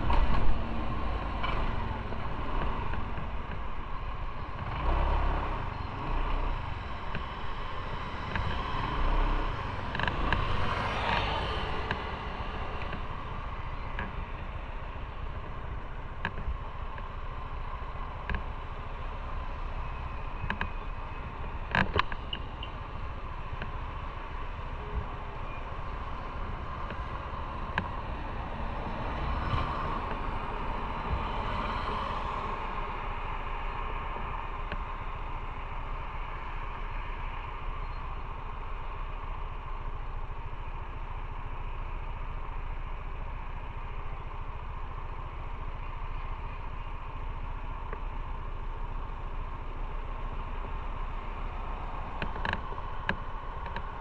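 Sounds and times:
rushing wind: 0:00.0 - 0:40.7
road noise: 0:00.0 - 0:54.0.

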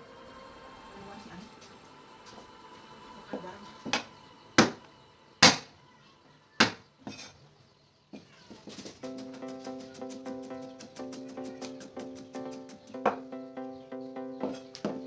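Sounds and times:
knife chopping on cutting board: 0:06.6 - 0:07.3.

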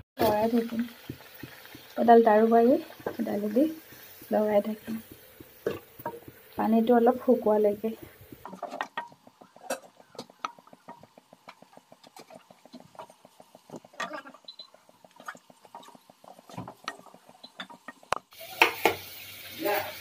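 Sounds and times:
wooden spatula stirring paste: 0:00.2 - 0:18.7
steady sizzle: 0:00.2 - 0:20.0.

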